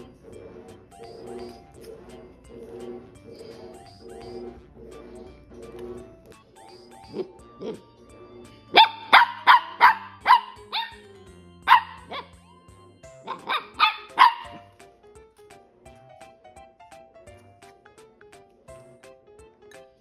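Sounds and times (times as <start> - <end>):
background music: 0.0 - 20.0
puppy barking: 8.7 - 12.4, 13.2 - 14.7.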